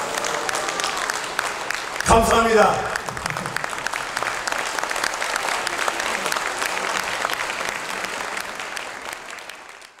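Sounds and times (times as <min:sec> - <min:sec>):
audience applauding: 0:00.0 - 0:10.0.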